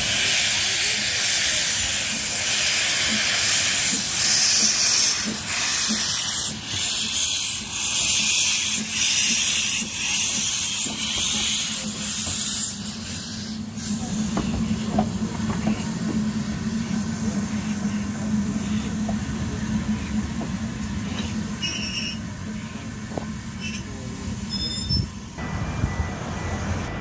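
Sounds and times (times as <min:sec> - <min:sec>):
steam locomotive hissing: 0:00.0 - 0:27.0.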